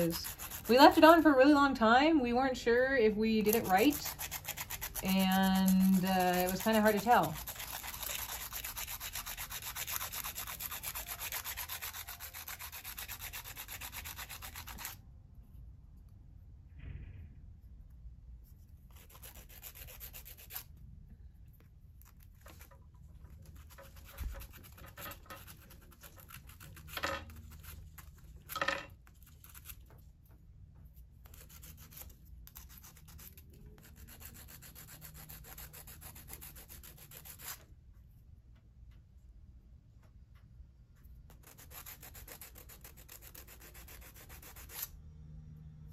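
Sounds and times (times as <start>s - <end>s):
emery board rasping on metal: 0.0s - 1.3s, 3.3s - 15.0s.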